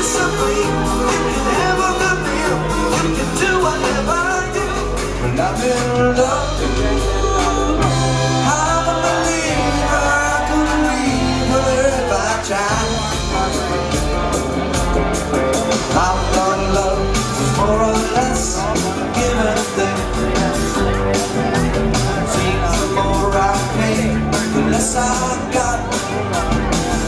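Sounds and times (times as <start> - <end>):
woman singing lead: 0.0 - 13.4
electric bass: 0.0 - 27.0
electric guitar: 0.0 - 27.0.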